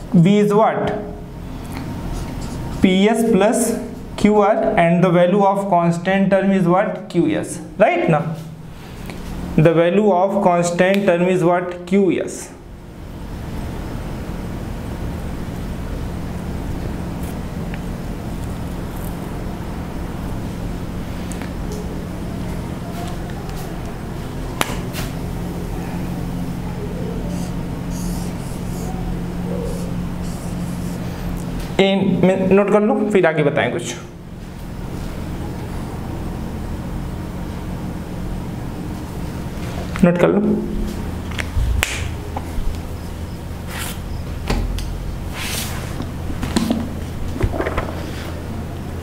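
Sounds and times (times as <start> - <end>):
low electrical hum: 0.0 - 49.0
marker drawing on whiteboard: 27.3 - 29.0, 29.6 - 31.1
sharp click: 41.4 - 42.2.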